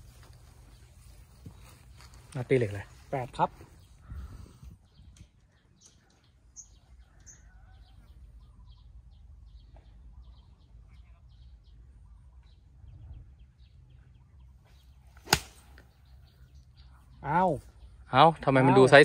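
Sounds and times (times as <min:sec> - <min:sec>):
light wind rumble: 0:00.0 - 0:05.7, 0:12.0 - 0:14.3
small birds chirping: 0:00.0 - 0:19.0.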